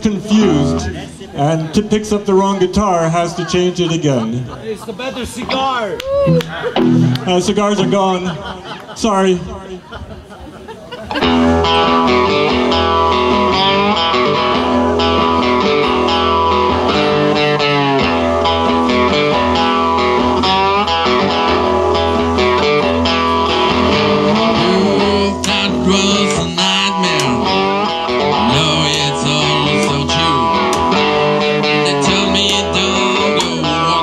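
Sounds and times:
slide guitars: 0:00.0 - 0:04.5, 0:05.5 - 0:08.8, 0:11.1 - 0:34.0
drums: 0:11.0 - 0:34.0.

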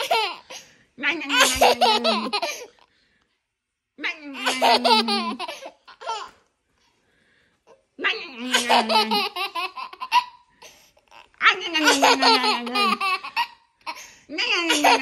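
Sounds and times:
toddler laughing: 0:00.0 - 0:00.6, 0:01.3 - 0:02.7, 0:04.4 - 0:06.4, 0:08.5 - 0:14.1, 0:14.7 - 0:15.0.

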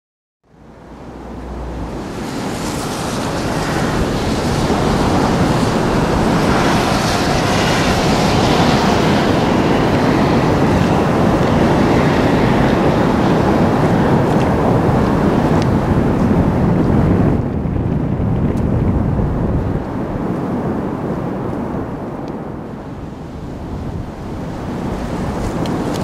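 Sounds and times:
waterfall roaring: 0:00.6 - 0:16.8.

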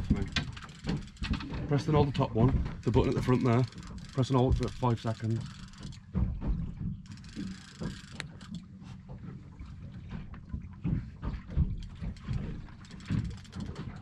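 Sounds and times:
wind rumbling on microphone: 0:00.0 - 0:05.0
low knocks: 0:00.0 - 0:05.1.

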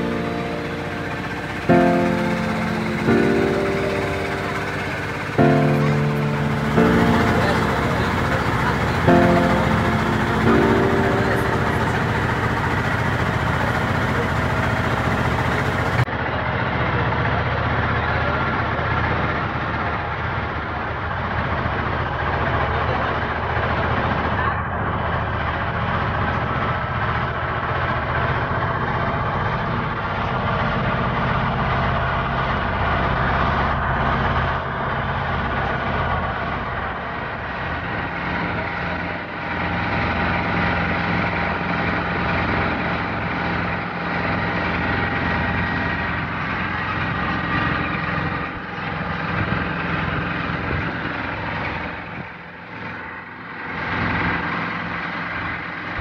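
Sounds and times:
boat engine running: 0:00.0 - 0:16.1.

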